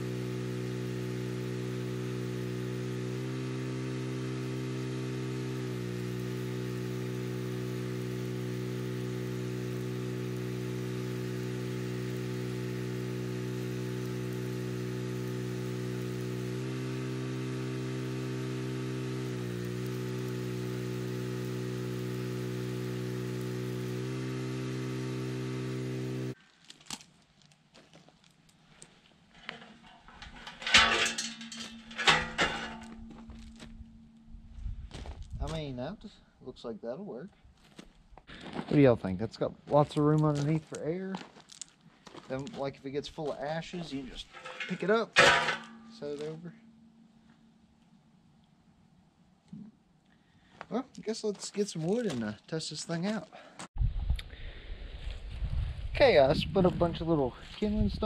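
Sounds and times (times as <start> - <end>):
welding arc crackling hiss: 0.0 - 26.4
welding power hum: 0.0 - 26.4, 29.4 - 35.9, 42.7 - 47.7.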